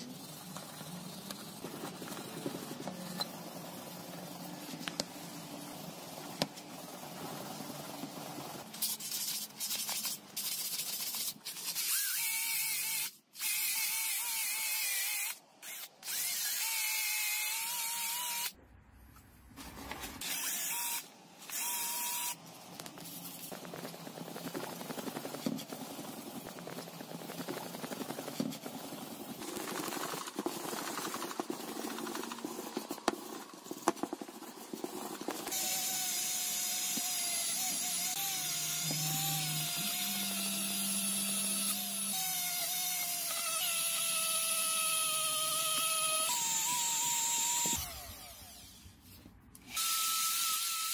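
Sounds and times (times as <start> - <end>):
sandpaper gritty hiss: 0.0 - 12.2, 22.9 - 36.2
cordless drill whining: 20.2 - 22.4, 35.5 - 49.0.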